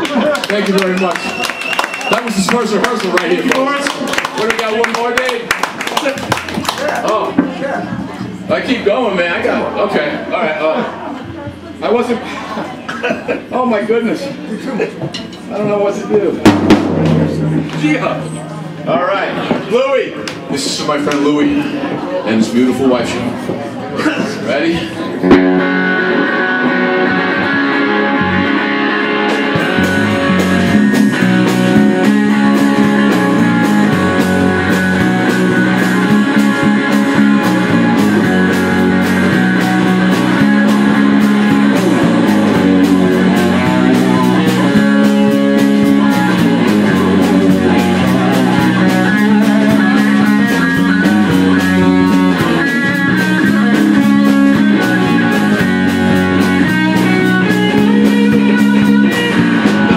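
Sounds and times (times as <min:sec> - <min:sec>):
bass guitar: 0:00.0 - 0:59.9
drum kit beat: 0:15.7 - 0:19.8, 0:25.2 - 0:59.9
electric guitar: 0:24.9 - 0:59.9.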